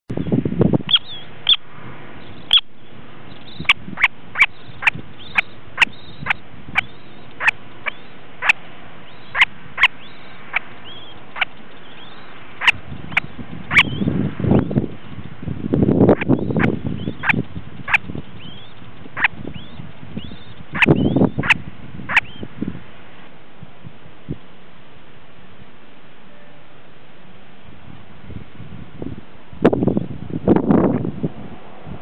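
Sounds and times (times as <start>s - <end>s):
chicks peeping: 3.3s - 14.9s, 16.1s - 22.5s.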